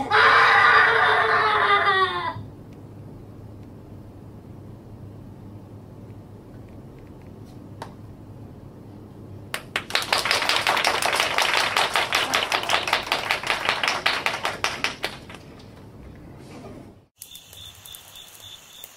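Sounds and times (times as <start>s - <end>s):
low hum: 1.7s - 9.6s.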